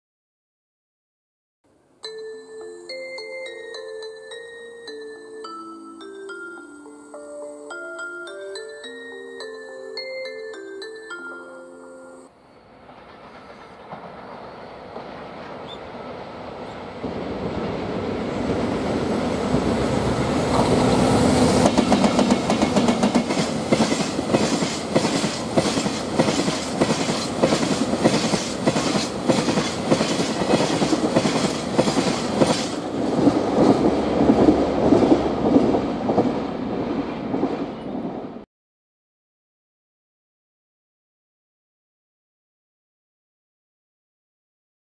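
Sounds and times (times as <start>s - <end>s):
electric locomotives passing: 11.2s - 38.4s.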